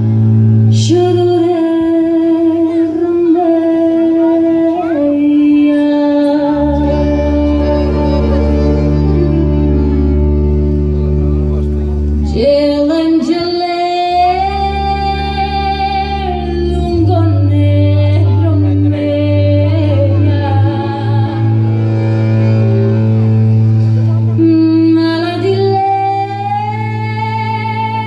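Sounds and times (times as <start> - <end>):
held bass line: 0.0 - 28.0
sustained chords: 0.0 - 28.0.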